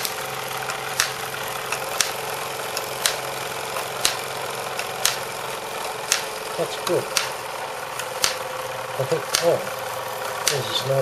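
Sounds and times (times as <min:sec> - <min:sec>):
sharp mechanical click: 0:00.0 - 0:05.3, 0:06.0 - 0:07.4, 0:08.0 - 0:08.5, 0:09.2 - 0:09.6, 0:10.4 - 0:10.7
toy steam engine whirring: 0:00.0 - 0:11.0.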